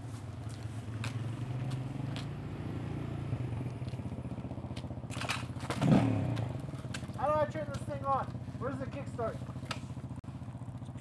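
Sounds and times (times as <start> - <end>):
engine idling: 3.3 - 11.0
bump on handlebar: 4.5 - 10.2.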